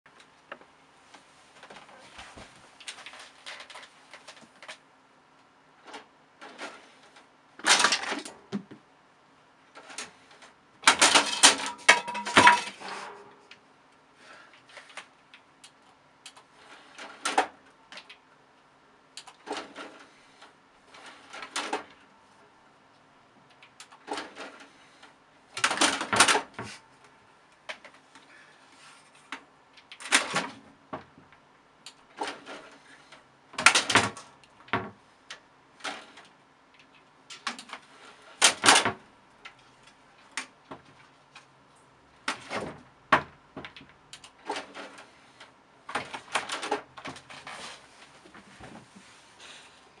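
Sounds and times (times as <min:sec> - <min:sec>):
knocks clicks and rattling clatters: 0:05.8 - 0:08.8, 0:09.8 - 0:13.3, 0:20.9 - 0:22.0, 0:23.5 - 0:26.8, 0:29.3 - 0:32.8, 0:33.6 - 0:35.0, 0:35.8 - 0:39.6.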